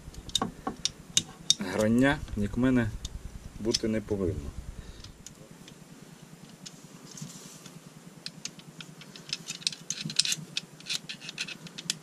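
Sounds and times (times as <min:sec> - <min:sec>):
screwdriver clicking and scraping metal: 0:09.0 - 0:12.0.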